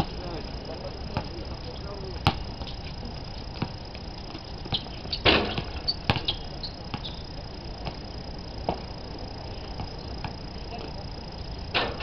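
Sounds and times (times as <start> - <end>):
steady high-pitched hum: 0.0 - 12.0
basketball and feet knocking: 2.2 - 7.1.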